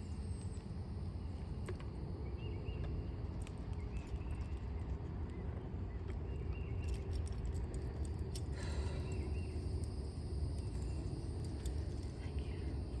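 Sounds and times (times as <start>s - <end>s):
steady low rumble: 0.0s - 13.0s
bridle buckles clinking: 2.8s - 12.7s.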